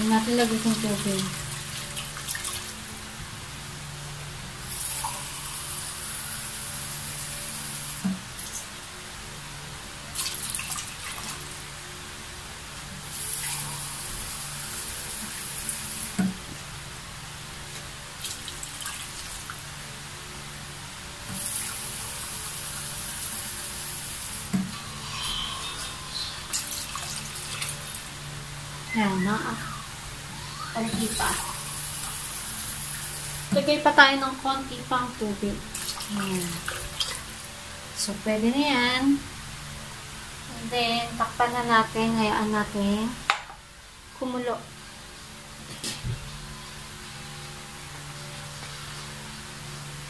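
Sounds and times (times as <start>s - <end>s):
water pouring into a pot: 26.5s - 28.1s.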